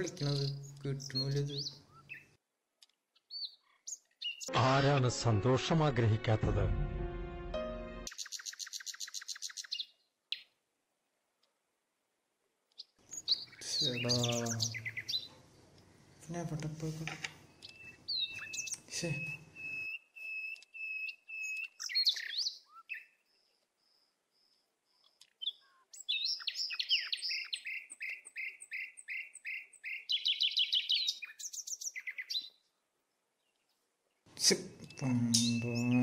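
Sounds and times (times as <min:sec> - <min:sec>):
birds singing: 0:00.0 - 0:02.4, 0:03.1 - 0:04.6, 0:08.1 - 0:10.6, 0:12.7 - 0:15.6, 0:16.5 - 0:36.0.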